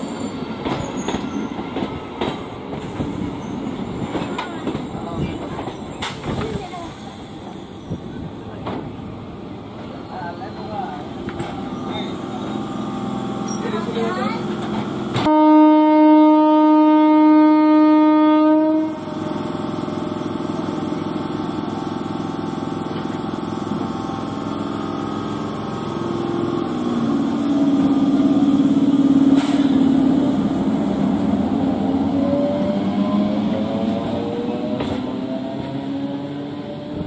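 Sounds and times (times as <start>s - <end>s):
train coaches rumbling on rails: 0.0s - 37.0s
train horn: 15.2s - 19.1s.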